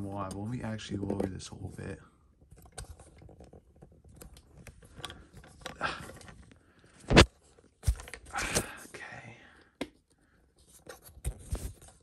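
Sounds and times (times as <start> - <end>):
handling clicks and rustles: 0.0 - 8.8.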